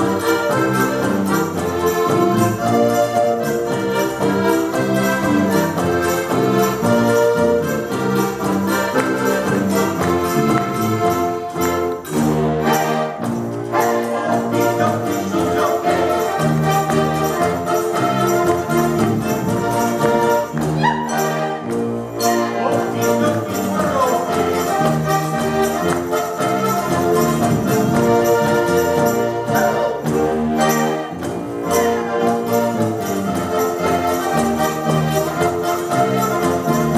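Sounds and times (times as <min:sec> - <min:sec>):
accordions playing a polka: 0:00.0 - 0:36.9.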